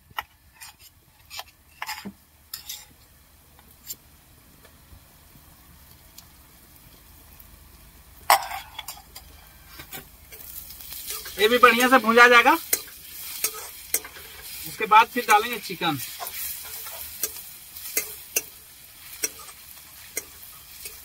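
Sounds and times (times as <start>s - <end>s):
frying sizzle: 0.0s - 21.0s
spoon clinking on glass and pan: 8.3s - 9.3s, 11.1s - 14.5s, 15.2s - 21.0s.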